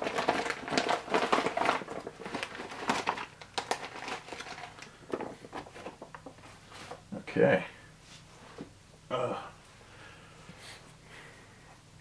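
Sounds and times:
plastic bag crinkling: 0.0 - 6.5.

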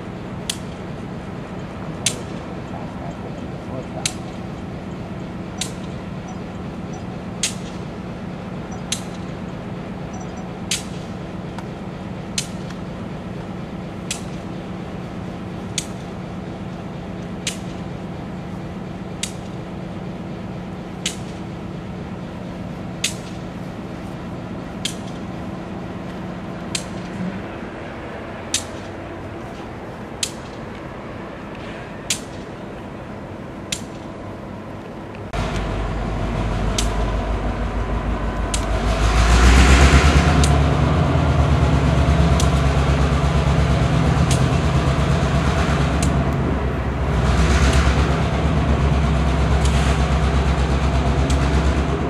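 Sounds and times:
diesel locomotive idling: 0.0 - 52.0
sharp single clicks: 5.6 - 6.4, 7.4 - 7.8, 8.7 - 9.3, 10.2 - 11.7, 14.1 - 14.4, 17.3 - 17.8, 19.2 - 19.6, 21.0 - 21.4, 28.5 - 29.0, 36.7 - 37.0.

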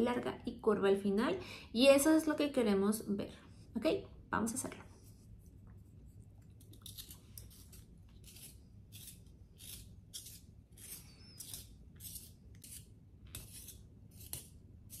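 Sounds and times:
pencil sharpener scraping: 6.8 - 15.0.

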